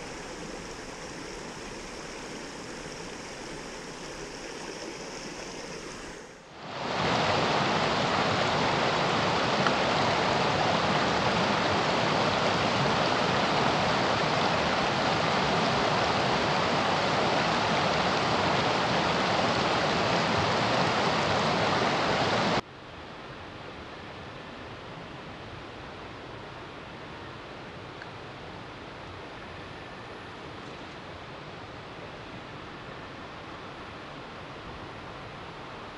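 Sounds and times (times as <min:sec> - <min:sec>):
creek water rushing over rocks: 0:00.0 - 0:22.6.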